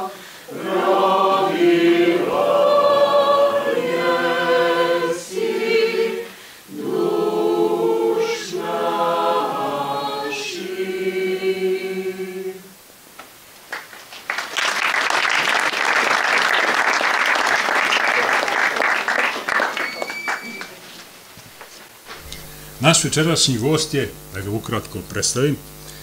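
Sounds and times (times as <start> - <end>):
choir singing a cappella: 0.0 - 12.8
audience applause: 13.7 - 21.1.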